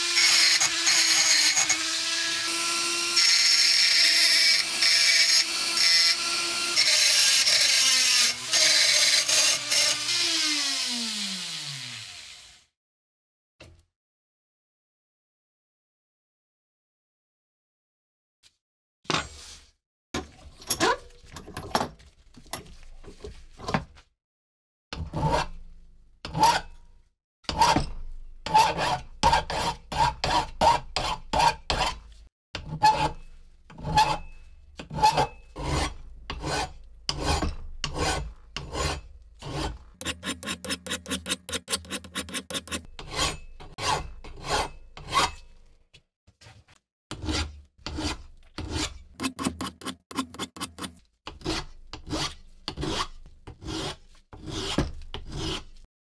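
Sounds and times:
hand file rasping on metal: 28.4 - 45.5, 47.1 - 55.9.

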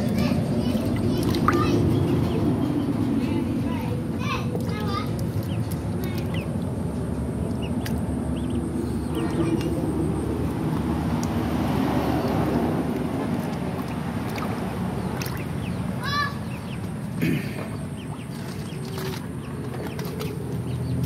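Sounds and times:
hands splashing water in basin: 0.0 - 2.6, 4.5 - 8.2, 9.0 - 16.0, 17.6 - 21.0
low rumble: 0.0 - 17.1.

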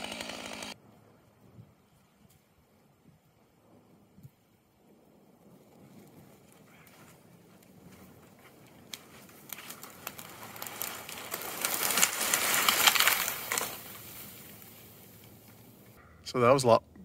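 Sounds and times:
wood cracking: 6.5 - 15.6
tree crashing through branches: 8.4 - 14.9.

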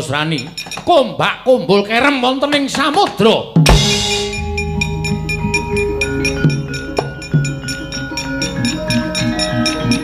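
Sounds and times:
gamelan playing: 3.7 - 10.0.

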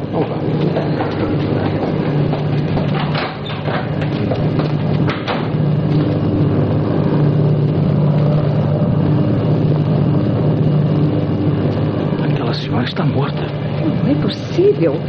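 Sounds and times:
airliner engines droning: 0.0 - 15.0.

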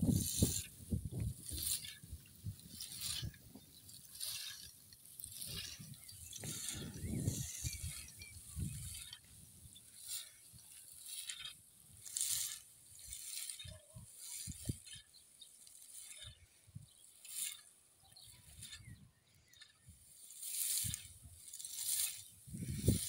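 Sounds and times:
wind rumbling on microphone: 0.0 - 10.8, 18.2 - 20.0, 20.6 - 23.0.

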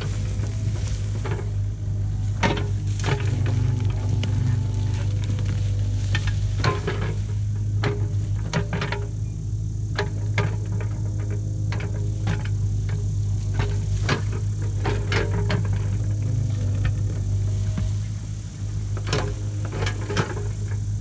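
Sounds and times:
steel bucket clanking into soil: 0.0 - 9.2
diesel engine running: 0.0 - 21.0.

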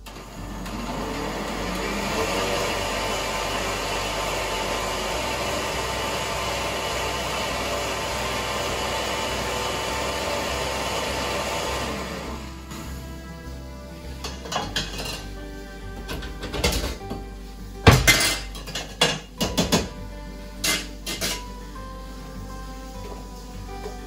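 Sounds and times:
electric blender running: 0.0 - 13.6.

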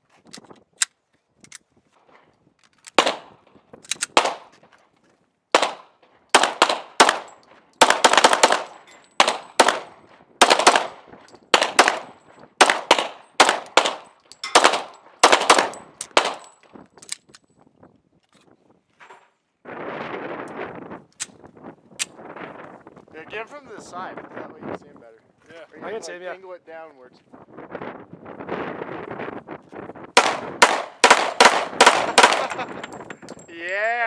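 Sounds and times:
pistol shots with echo: 3.0 - 3.3, 4.1 - 4.5, 5.6 - 16.5, 30.2 - 32.7.

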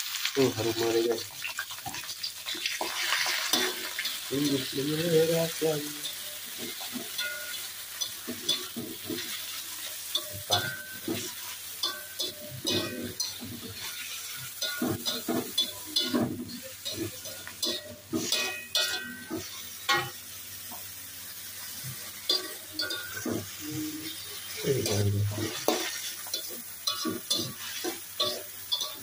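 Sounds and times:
hot oil sizzling: 0.0 - 29.0
metal spatula scraping a wok: 6.0 - 20.2, 21.7 - 29.0.

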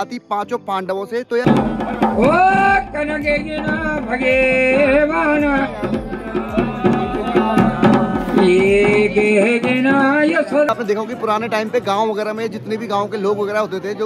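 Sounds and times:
folk drums playing steady beat: 1.4 - 12.4.

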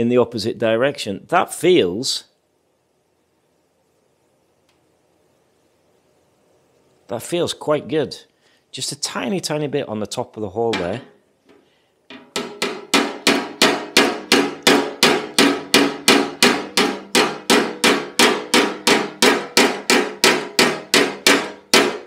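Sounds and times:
hammer tapping steel panel: 10.7 - 22.0.

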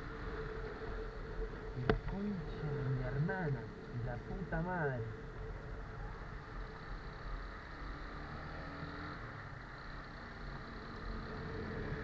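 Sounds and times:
motorcycle engine hum: 0.0 - 12.0
wind and tyre hiss: 0.0 - 12.0.

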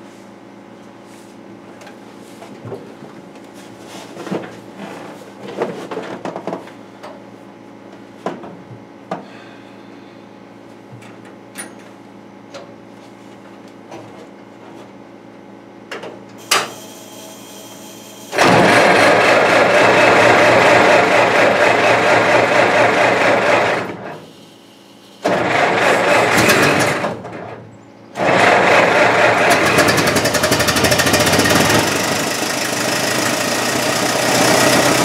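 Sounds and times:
car engine starting and running: 18.4 - 24.0, 25.3 - 27.2, 28.2 - 35.0.

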